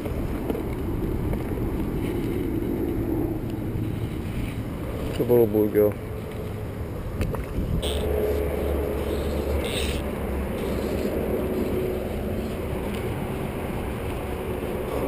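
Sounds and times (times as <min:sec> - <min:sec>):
wind buffeting microphone: 0:00.0 - 0:15.0
fly line swishing: 0:07.8 - 0:15.0.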